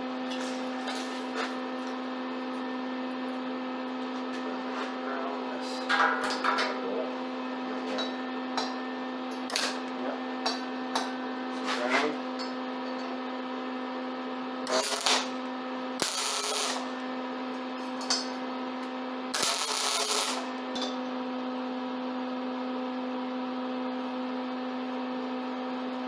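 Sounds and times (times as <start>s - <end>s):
steady hum: 0.0s - 21.8s
arc welder tack welds: 9.4s - 10.0s, 14.6s - 17.0s, 18.8s - 20.7s.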